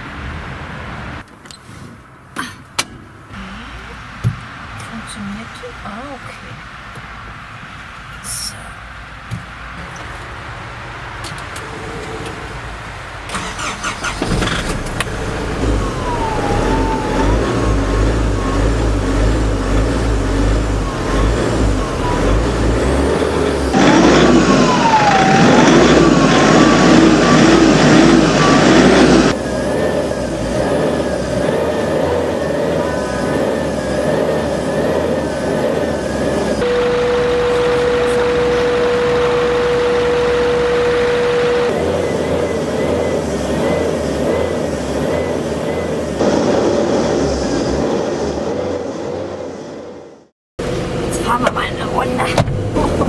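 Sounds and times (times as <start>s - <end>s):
truck engine starting and revving: 11.0s - 53.0s
steady single tone: 15.6s - 46.4s.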